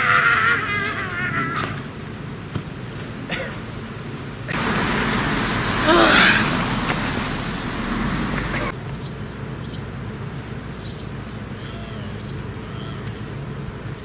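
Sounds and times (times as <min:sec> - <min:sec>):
high insect drone: 0:04.5 - 0:08.7
steady rushing noise: 0:04.5 - 0:08.7.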